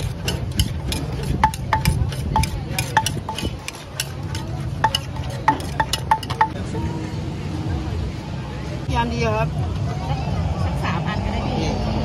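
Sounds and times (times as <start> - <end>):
wooden pestle pounding in mortar: 0.0 - 6.6.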